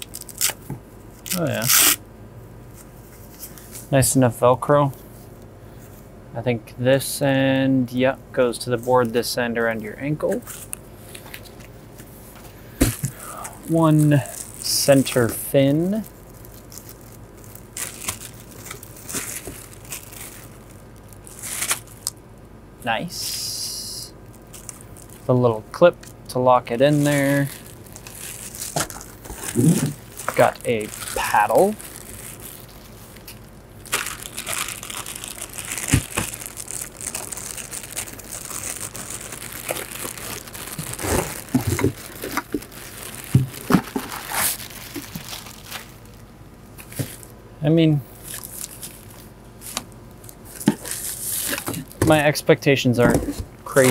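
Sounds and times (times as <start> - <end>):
plastic bag crinkling: 0.0 - 0.6, 12.9 - 22.2, 24.2 - 25.4, 26.0 - 47.3, 48.2 - 52.1.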